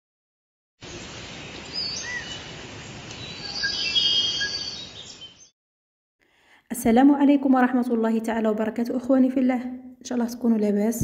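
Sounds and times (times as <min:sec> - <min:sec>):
small birds chirping: 0:00.8 - 0:05.5.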